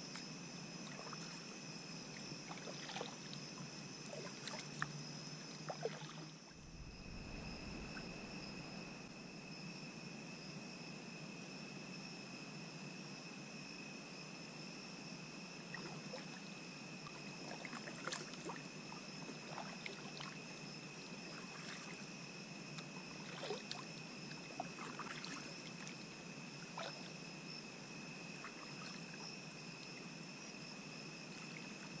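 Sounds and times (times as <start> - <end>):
high-pitched hum: 6.5 - 9.2
paddle splashing in water: 23.2 - 23.8, 24.6 - 25.9.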